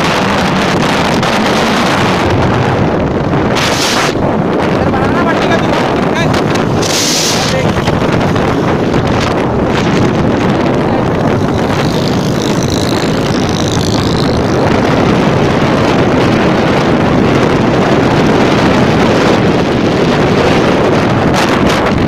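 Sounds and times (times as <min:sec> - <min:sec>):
wind buffeting microphone: 0:00.0 - 0:22.0
small motorcycle engine running: 0:10.9 - 0:16.1.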